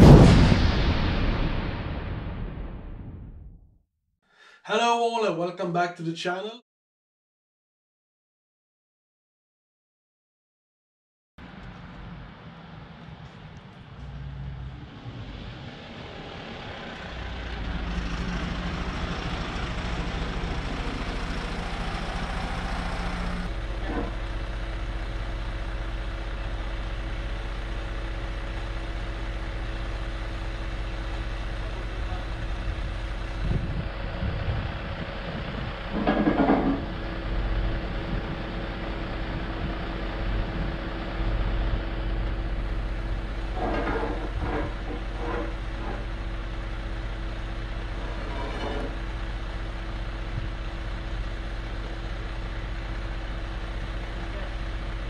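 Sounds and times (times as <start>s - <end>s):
diesel truck engine running: 11.4s - 55.0s.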